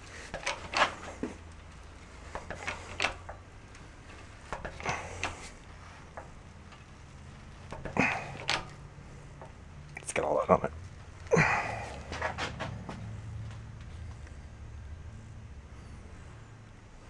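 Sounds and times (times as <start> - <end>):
steady low hum: 0.0 - 17.0
metallic clicks and clunks: 0.2 - 1.4, 2.3 - 6.9, 7.7 - 8.8.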